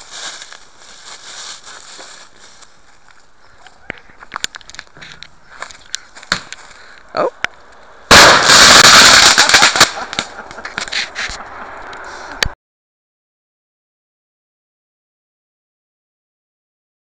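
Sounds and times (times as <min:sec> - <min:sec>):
firework blast: 0:08.1 - 0:12.4
firework crackling: 0:08.1 - 0:12.4.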